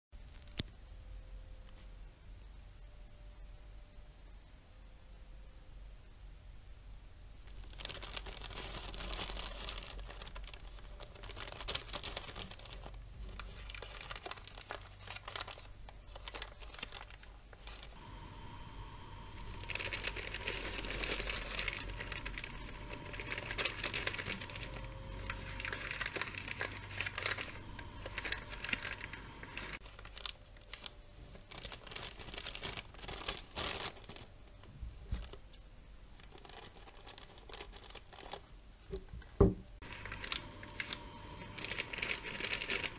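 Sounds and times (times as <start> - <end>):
plastic wrapper crinkling: 7.4 - 35.5, 36.2 - 38.5, 39.8 - 42.9.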